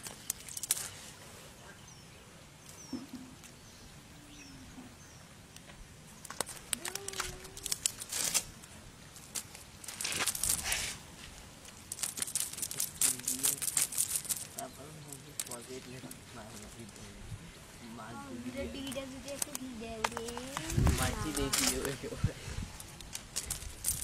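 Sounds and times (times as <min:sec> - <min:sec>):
net rustling and scraping: 0:00.0 - 0:01.1, 0:06.3 - 0:17.2, 0:20.2 - 0:22.1, 0:22.7 - 0:24.0.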